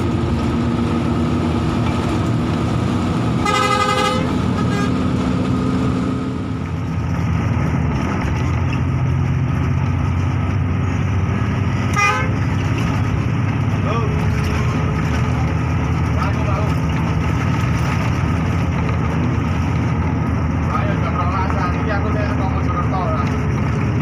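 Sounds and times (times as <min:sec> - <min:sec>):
bus diesel engine at full throttle: 0:00.0 - 0:24.0
bus horn blasts: 0:03.4 - 0:05.1, 0:11.9 - 0:12.5.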